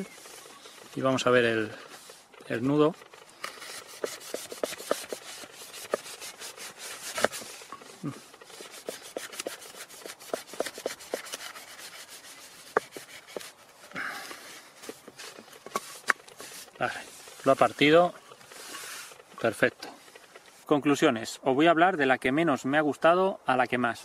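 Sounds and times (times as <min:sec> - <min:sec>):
knife sawing through rope: 0:03.3 - 0:19.2.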